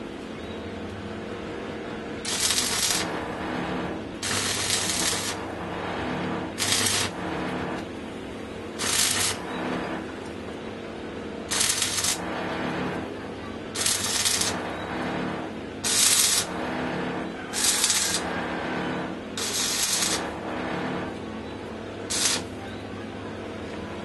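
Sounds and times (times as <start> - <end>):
steady low hum: 0.0 - 24.0
welding arc crackling and sizzling: 2.0 - 8.0, 8.6 - 10.2, 11.4 - 22.6.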